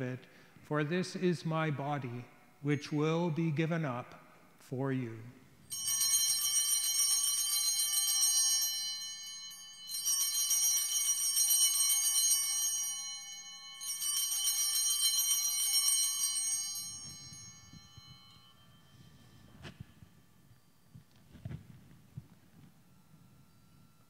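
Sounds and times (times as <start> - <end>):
altar bells jingling: 5.6 - 24.0.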